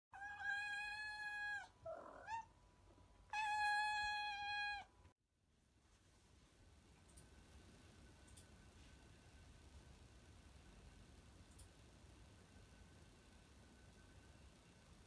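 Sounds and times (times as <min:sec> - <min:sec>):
cat meowing: 0:00.2 - 0:02.5, 0:03.3 - 0:04.9.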